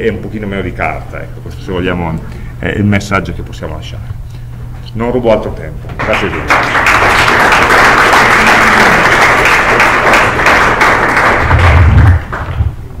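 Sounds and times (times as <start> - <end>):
audience applauding: 6.0 - 12.7
low rumble: 11.4 - 12.8.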